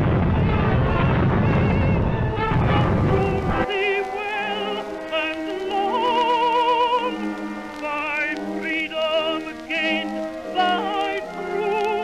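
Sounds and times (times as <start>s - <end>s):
low gunfire rumble: 0.0s - 3.6s
orchestral accompaniment: 0.0s - 12.0s
operatic singing with vibrato: 0.4s - 12.0s.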